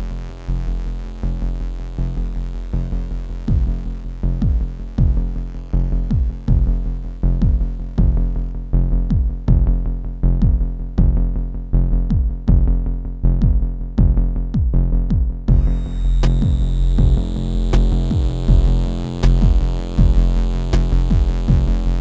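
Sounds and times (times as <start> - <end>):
low synth drone: 0.0 - 9.0, 15.5 - 22.0
drum-machine beat: 3.4 - 8.4, 9.0 - 9.8, 10.4 - 11.4, 12.0 - 12.8, 13.4 - 22.0
hissing high synth: 15.5 - 22.0.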